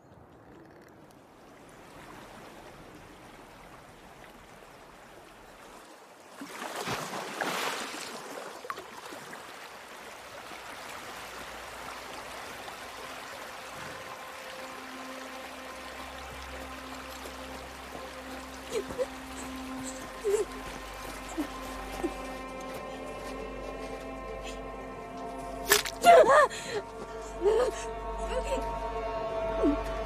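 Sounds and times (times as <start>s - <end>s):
stream running over rocks: 0.2s - 22.6s, 25.5s - 26.2s
water splashing: 0.2s - 22.8s, 25.6s - 26.3s.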